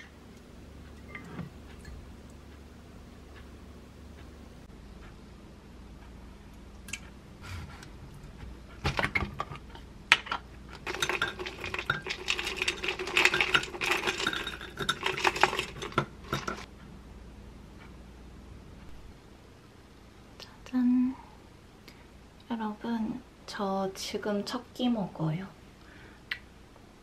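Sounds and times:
granola rattling into a glass mug: 10.8 - 16.7.

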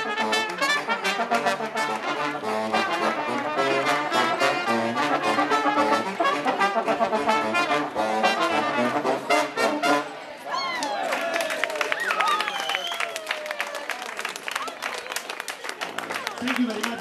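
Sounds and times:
brass band playing: 0.0 - 10.4.

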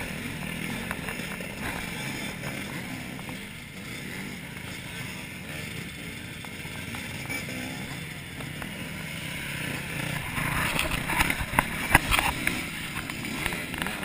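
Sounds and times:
dirt bike engines revving: 0.0 - 14.0.

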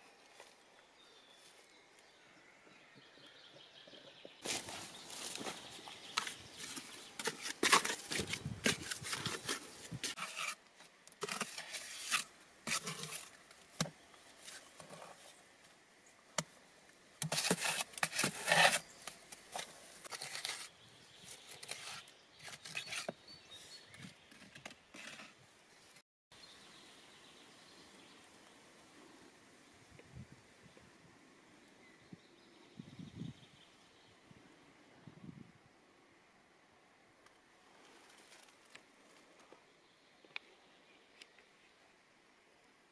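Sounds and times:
rustling scraping and crackling: 4.4 - 15.4, 17.2 - 23.2, 37.7 - 39.6.

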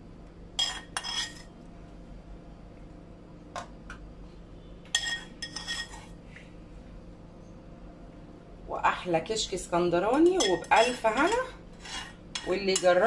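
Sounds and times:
metal spoon clinking on pan: 4.9 - 6.0, 10.2 - 13.0.

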